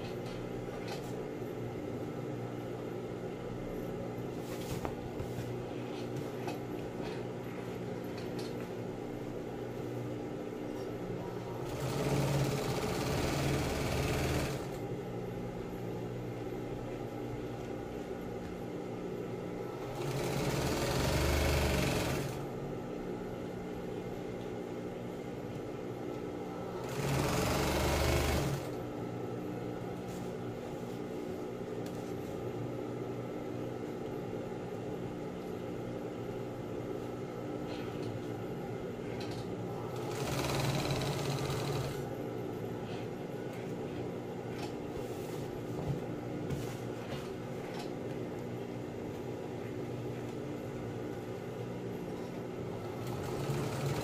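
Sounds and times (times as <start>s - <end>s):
sewing machine motor humming: 11.6s - 14.8s, 19.8s - 22.5s, 26.8s - 28.8s, 39.9s - 42.0s, 52.9s - 54.0s
sewing machine stitching: 11.6s - 14.8s, 19.8s - 22.4s, 26.8s - 28.7s, 40.0s - 42.0s, 52.9s - 54.0s.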